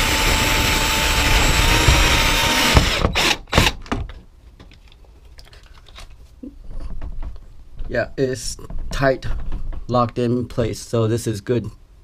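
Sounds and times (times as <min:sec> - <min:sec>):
cordless drill driving screw: 0:00.0 - 0:03.8.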